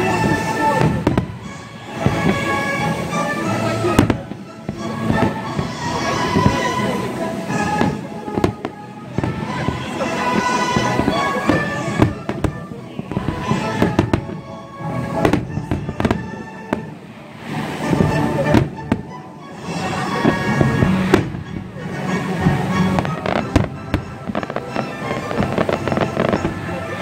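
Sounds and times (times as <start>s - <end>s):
music playing: 0.0s - 27.0s
firework shells bursting: 20.1s - 26.7s.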